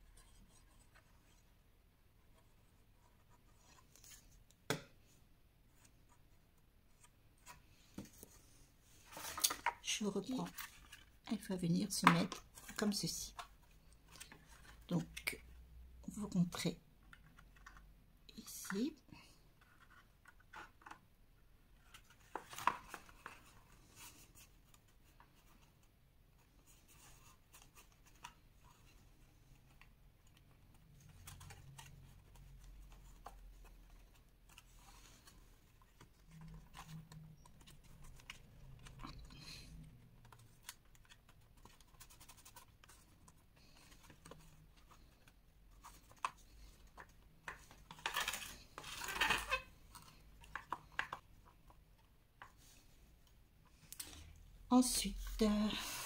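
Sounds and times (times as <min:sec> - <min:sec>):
cardboard pieces tapping and scraping: 0:21.8 - 0:23.5, 0:40.2 - 0:51.8.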